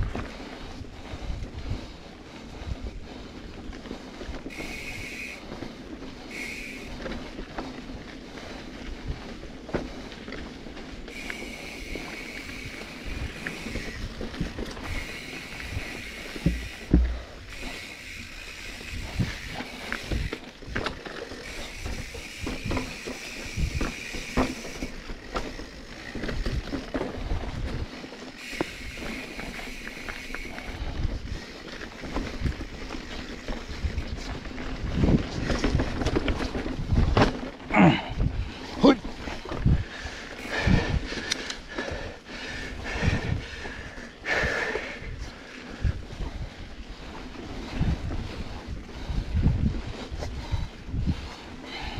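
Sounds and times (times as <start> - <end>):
bike knocking and rattling: 0.0 - 51.9
high steady buzz: 4.5 - 5.5, 6.3 - 7.1, 14.8 - 20.4
wind on microphone: 11.1 - 37.3, 39.2 - 41.5, 42.5 - 51.9.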